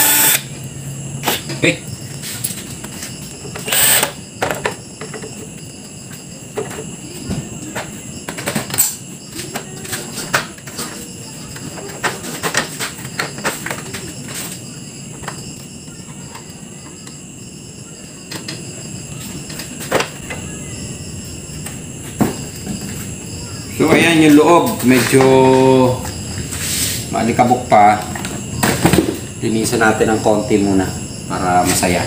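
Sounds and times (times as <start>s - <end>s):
high pulsing chirp: 20.2s - 27.8s.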